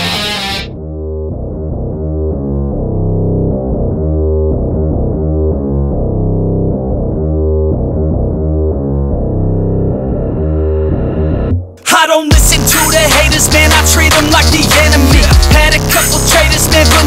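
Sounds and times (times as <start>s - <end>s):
muffled instrumental music with bass: 0.0s - 17.0s.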